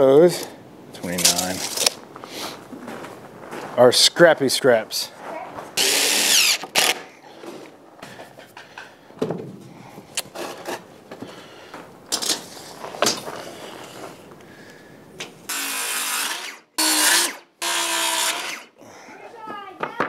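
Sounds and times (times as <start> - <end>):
power drill running: 5.8 - 7.0, 15.5 - 18.7.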